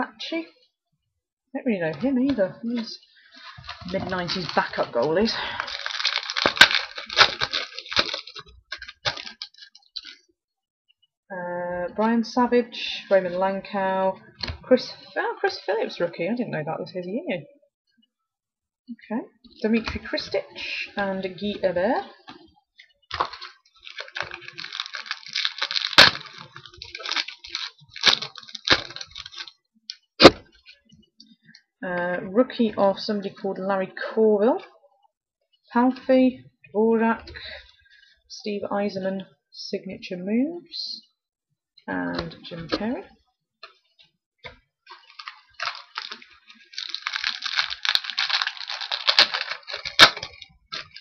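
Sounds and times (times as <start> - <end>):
wrapper crinkling and tearing: 2.7 - 10.3, 19.5 - 30.8, 42.1 - 43.8, 44.4 - 51.0
sharp cracks of wrapper: 3.3 - 10.2, 23.1 - 30.4, 44.4 - 51.0.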